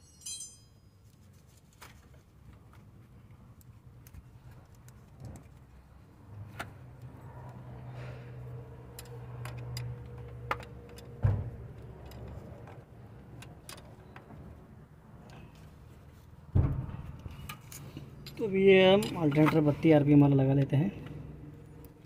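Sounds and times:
spanner clinking on a nut: 0.0s - 0.9s
loud thump: 16.5s - 17.2s.

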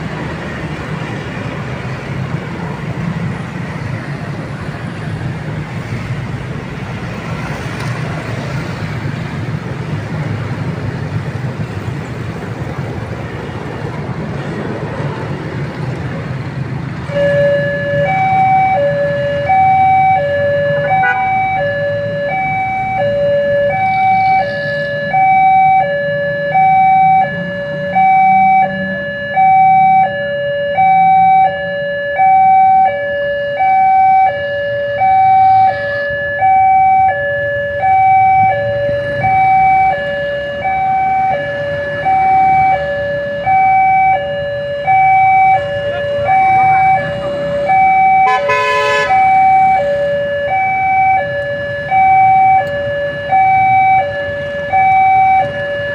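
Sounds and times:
road traffic: 0.0s - 55.9s
level crossing alarm two-tone: 17.0s - 55.9s
horn blast: 20.8s - 21.4s, 48.2s - 49.4s.

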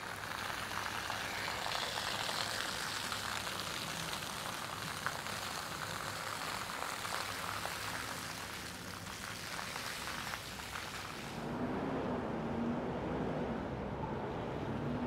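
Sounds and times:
water fountain splashing: 0.0s - 11.4s.

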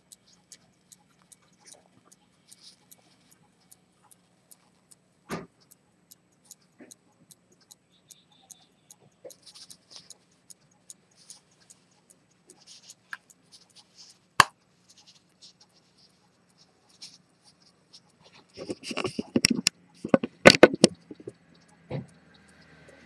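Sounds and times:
watch ticking: 0.0s - 23.0s
sharp click: 18.7s - 21.4s.

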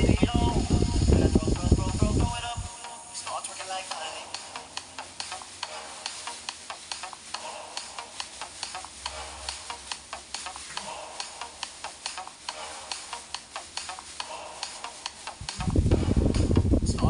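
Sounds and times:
plastic bag skirt crinkling: 3.6s - 16.5s.

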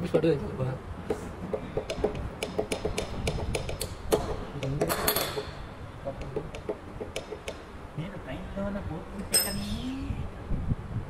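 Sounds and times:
metal clinks and taps: 9.2s - 9.7s.

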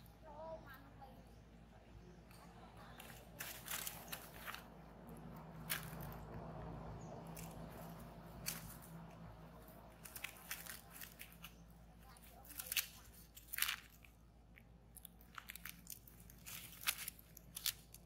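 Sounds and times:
soft mouth clicks and crunches: 10.0s - 18.0s.

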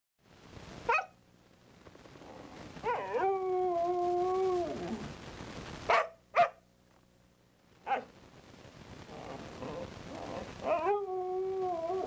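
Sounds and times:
dog howling: 2.8s - 5.0s, 9.2s - 12.0s.

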